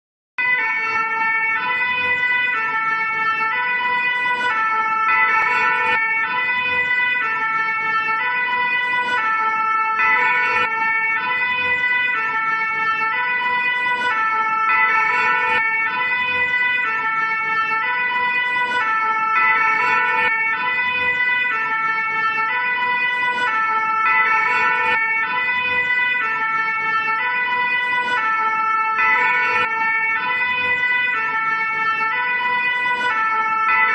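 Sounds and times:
two-tone siren: 0:00.4 - 0:33.9.

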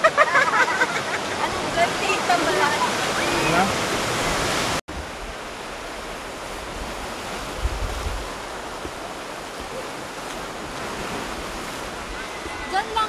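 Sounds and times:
sea surf washing: 0:00.0 - 0:13.0
wind rumble on microphone: 0:04.2 - 0:09.8.

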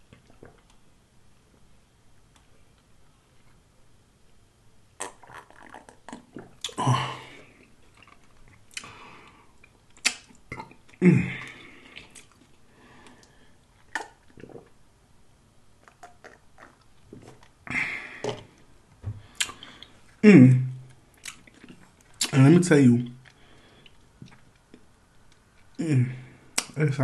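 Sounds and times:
gulping and swallowing: 0:05.0 - 0:07.2, 0:10.0 - 0:12.5, 0:13.9 - 0:14.8, 0:15.8 - 0:16.9
mouth clicks: 0:09.9 - 0:12.3, 0:26.6 - 0:26.8.

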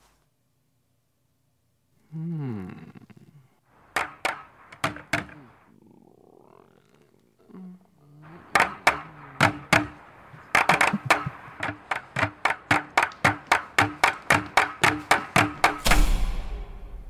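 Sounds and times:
rhythmic percussive beat: 0:08.6 - 0:16.6.

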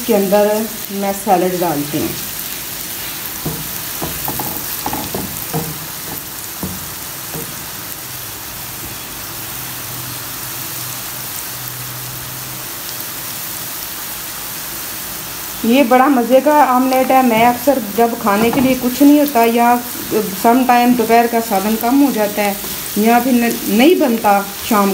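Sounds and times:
onions sizzling in oil: 0:00.0 - 0:24.9
spatula scraping a pan: 0:22.4 - 0:23.2.

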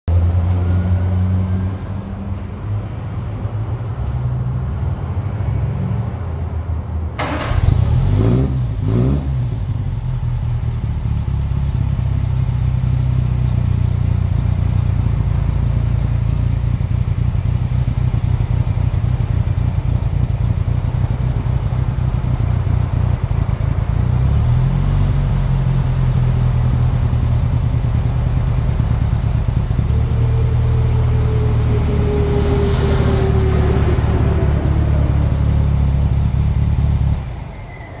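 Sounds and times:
car engine idling: 0:07.2 - 0:37.4.

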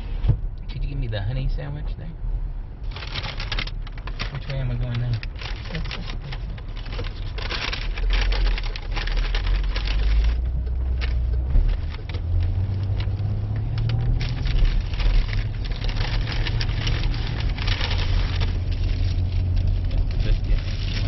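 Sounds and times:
car engine: 0:00.0 - 0:21.0
road noise inside car: 0:00.0 - 0:21.0.

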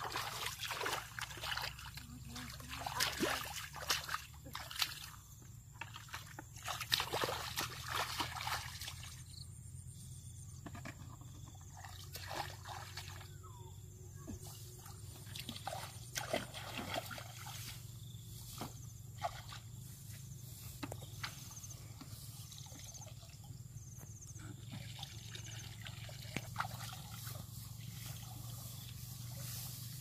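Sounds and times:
small splashes: 0:00.0 - 0:09.3, 0:11.6 - 0:13.4, 0:14.7 - 0:17.8, 0:18.6 - 0:19.7, 0:24.4 - 0:29.1
water sloshing and trickling: 0:00.0 - 0:09.5, 0:10.6 - 0:13.5, 0:14.3 - 0:30.0.

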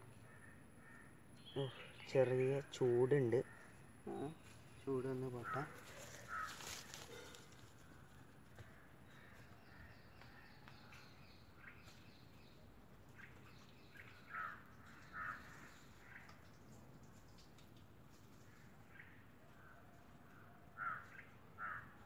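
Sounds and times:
crows cawing: 0:00.2 - 0:01.3, 0:03.4 - 0:04.3, 0:05.1 - 0:07.6, 0:08.6 - 0:10.5, 0:14.2 - 0:16.4, 0:20.4 - 0:22.0.

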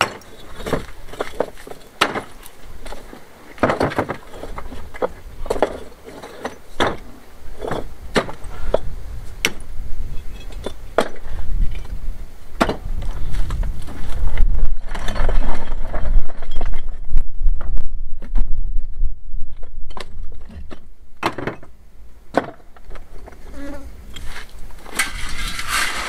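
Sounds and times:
stones tipped from metal bucket: 0:24.8 - 0:26.0.

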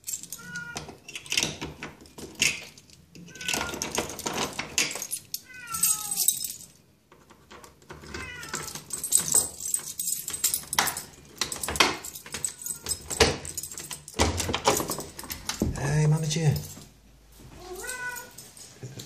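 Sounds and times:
keys jangling in door lock: 0:00.0 - 0:06.8, 0:07.4 - 0:16.9
cat meowing: 0:00.4 - 0:01.0, 0:03.3 - 0:03.8, 0:05.4 - 0:06.4, 0:08.2 - 0:08.8, 0:17.6 - 0:18.4.

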